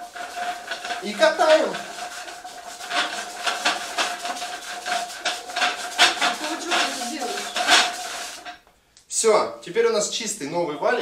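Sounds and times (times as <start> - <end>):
masking tape crackling: 0.0 - 8.7.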